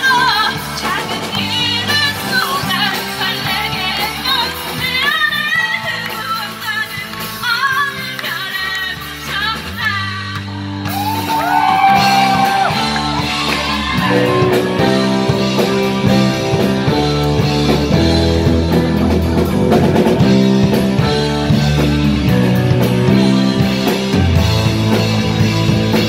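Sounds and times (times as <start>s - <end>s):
woman singing: 0.0s - 10.5s
drums: 0.0s - 26.0s
live rock band playing: 0.0s - 26.0s.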